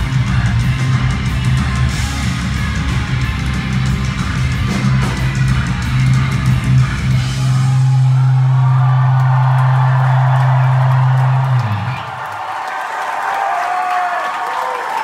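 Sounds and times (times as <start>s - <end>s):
live rock music: 0.0s - 12.1s
crowd cheering: 4.8s - 15.0s.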